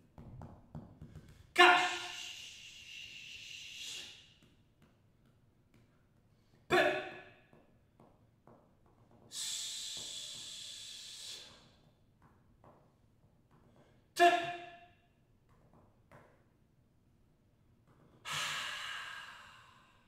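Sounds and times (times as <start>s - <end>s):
hissed breath: 2.0s - 4.3s, 9.3s - 11.6s, 18.3s - 20.0s
sharp vocal gasp: 18.2s - 20.0s.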